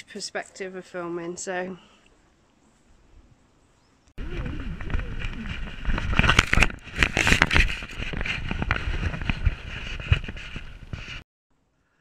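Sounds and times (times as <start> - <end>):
camera rubbing and knocking: 4.2 - 11.2.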